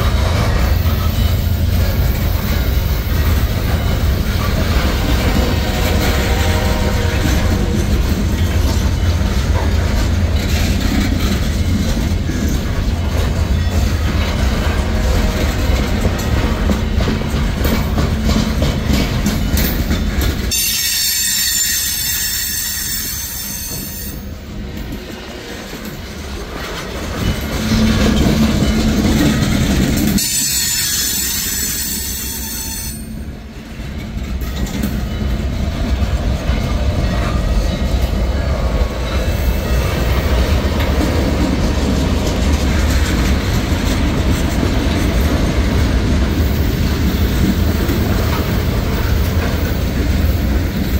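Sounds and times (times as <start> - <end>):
freight train wheels rumbling on rails: 0.0 - 50.9
high-pitched wheel squeal: 30.2 - 33.2.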